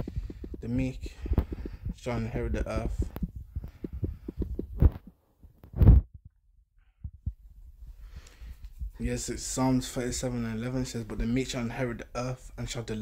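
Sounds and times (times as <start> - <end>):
fingers tapping a touchscreen: 3.0 - 5.1.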